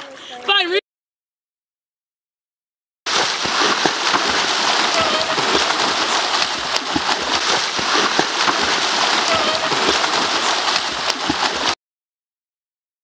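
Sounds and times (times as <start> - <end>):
swimmers splashing: 3.1 - 11.8.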